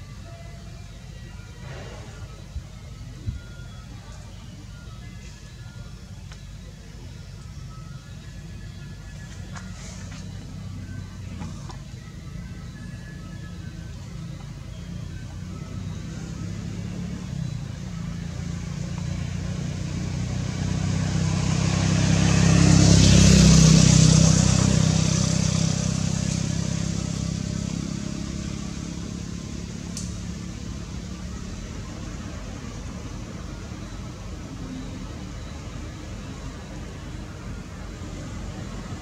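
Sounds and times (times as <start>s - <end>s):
vehicle passing by: 1.6s - 2.6s, 14.8s - 39.0s.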